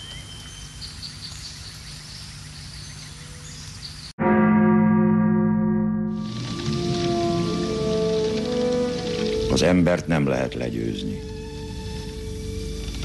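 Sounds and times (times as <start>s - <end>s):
bell-like metallic tone: 4.2s - 8.9s.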